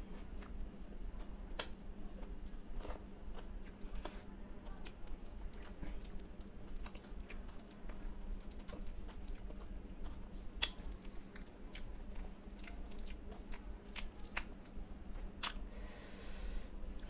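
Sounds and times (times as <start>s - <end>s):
low steady hum: 0.0s - 17.0s
wet chewing mouth clicks: 4.8s - 15.6s.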